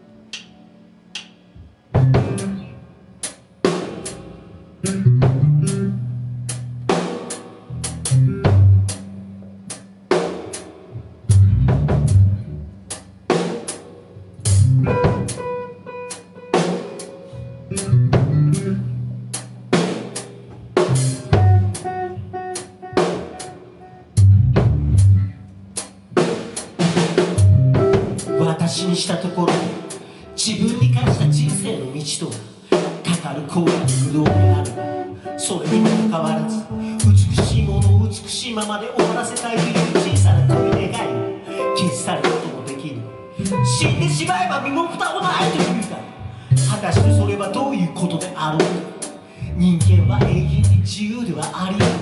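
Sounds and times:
band playing instrumental: 1.1 - 52.0
electric guitars: 1.6 - 12.8, 14.3 - 52.0
bass drum and snare hits: 2.0 - 2.6.

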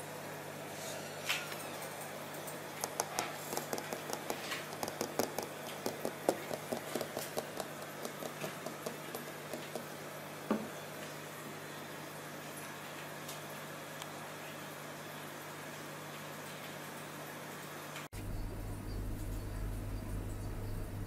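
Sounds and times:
aquarium air pump humming: 0.0 - 21.0
fingers tapping on glass: 2.8 - 10.0
air stone bubbling: 2.8 - 10.1.

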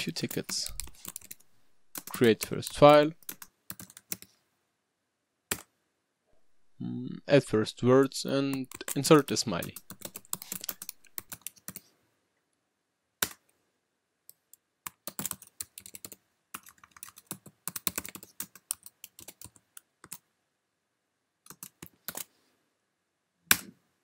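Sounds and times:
typing on computer keyboard: 0.2 - 4.3, 8.5 - 11.8, 14.8 - 20.2, 21.5 - 22.3.

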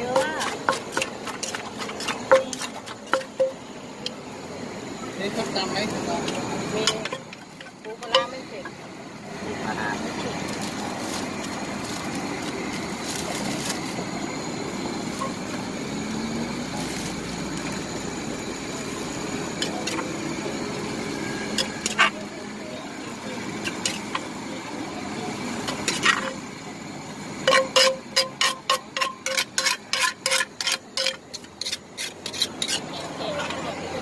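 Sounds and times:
metal spoon scraping clay mortar: 0.0 - 3.6, 21.5 - 22.3, 23.5 - 24.2, 25.6 - 26.4, 27.4 - 33.6
street background noise: 0.0 - 34.0.

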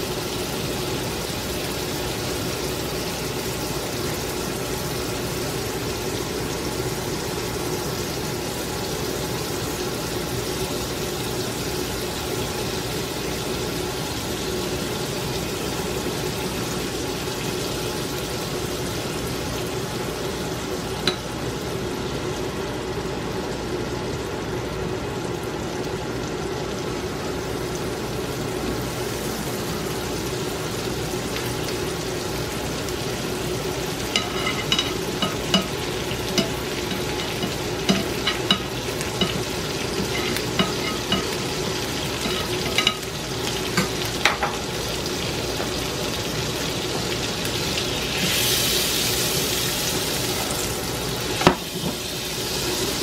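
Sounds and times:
pancakes sizzling in a pan: 27.1 - 53.0
spatula tapping against pan: 34.1 - 41.4.

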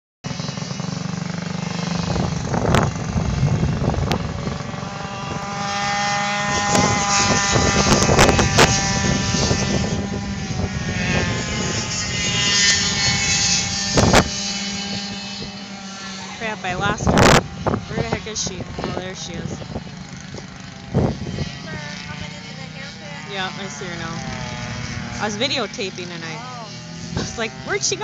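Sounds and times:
go-kart engine: 0.2 - 28.0.

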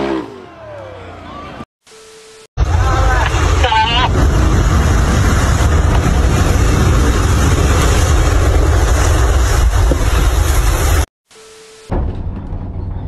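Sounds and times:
tower collapsing rumble: 2.6 - 11.1.

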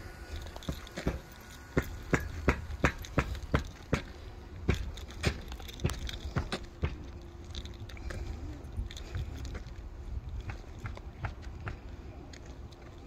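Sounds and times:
footsteps on shingle roof: 0.1 - 13.0.

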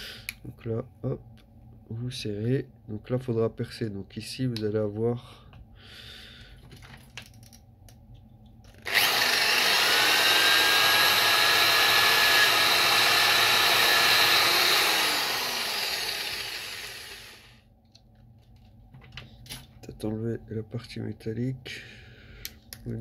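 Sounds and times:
electric drill boring through plastic: 8.8 - 17.6.

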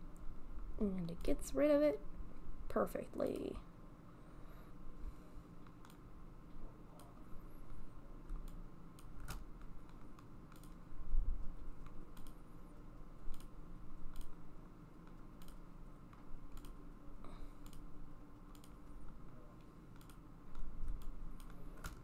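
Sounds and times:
steady low hum: 0.0 - 22.0
mouse and keyboard clicks: 8.3 - 10.8, 11.8 - 12.4, 14.1 - 14.4, 15.1 - 16.8, 18.5 - 18.8, 19.9 - 22.0.

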